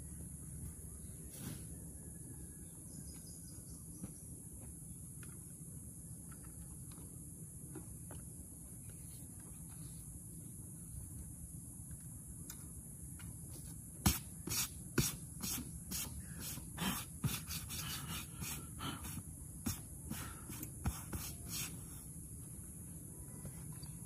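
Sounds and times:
steady high hiss: 8.4 - 24.0.

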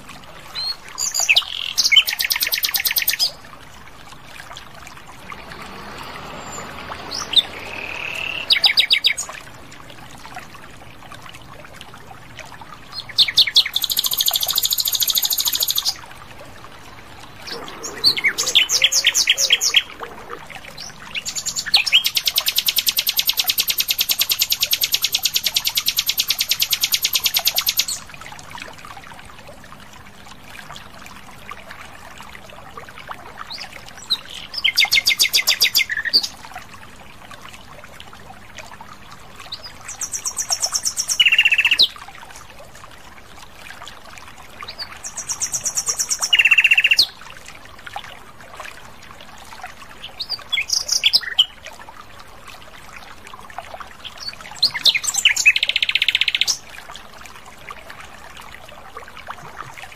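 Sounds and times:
nightingale singing: 6.4 - 9.3.

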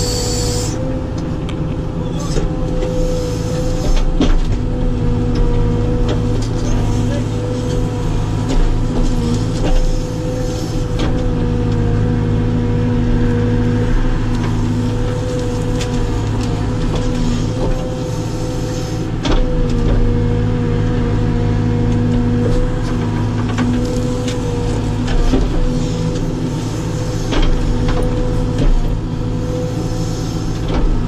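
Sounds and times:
steady whine: 0.0 - 1.7
diesel engine under load: 0.0 - 31.0.

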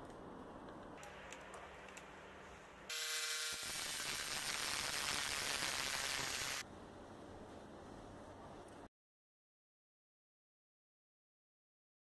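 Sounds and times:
jigsaw cutting metal tube: 2.9 - 6.6.

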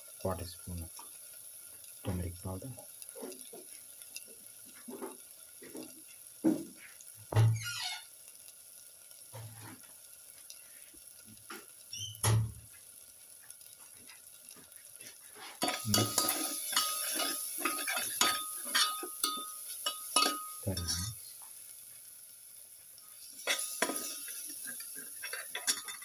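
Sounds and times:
masala sizzling in a pan: 0.0 - 26.0
metal spoon scraping a pan: 15.3 - 21.2, 23.2 - 26.0.

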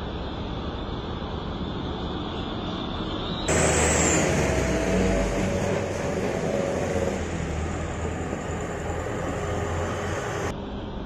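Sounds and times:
road traffic: 0.0 - 11.0
diesel truck passing: 3.5 - 10.6.

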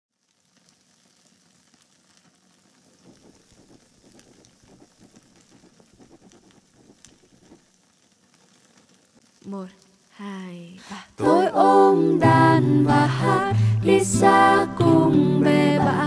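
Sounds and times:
faint crackling: 0.1 - 10.2
steady hiss: 0.2 - 16.0.

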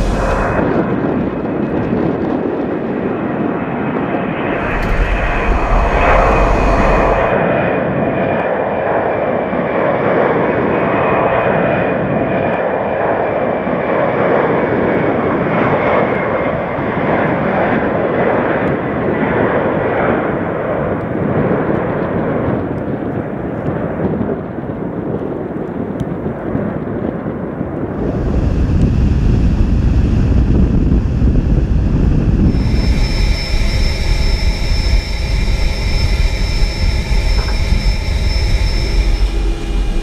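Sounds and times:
hiss and low rumble: 0.0 - 2.3, 4.4 - 7.5, 27.8 - 40.0
high fan whine: 0.0 - 3.0, 4.3 - 8.1, 27.8 - 40.0
jet engines loud rush: 0.0 - 23.6, 27.7 - 40.0.

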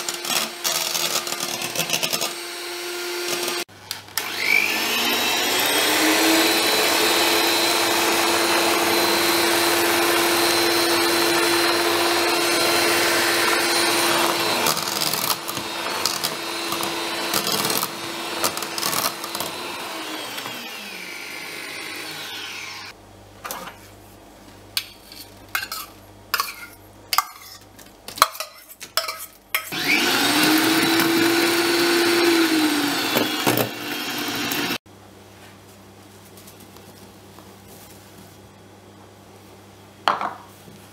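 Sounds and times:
electric hand mixer whine: 0.0 - 22.9, 29.7 - 34.8.

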